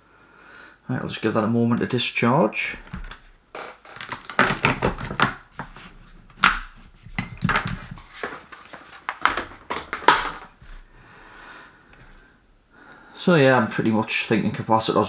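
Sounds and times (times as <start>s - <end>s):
hard objects clicking and knocking: 2.8s - 10.8s.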